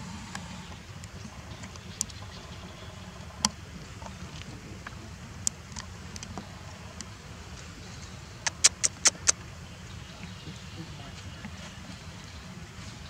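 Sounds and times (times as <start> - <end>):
sharp clicks: 8.4 - 9.4.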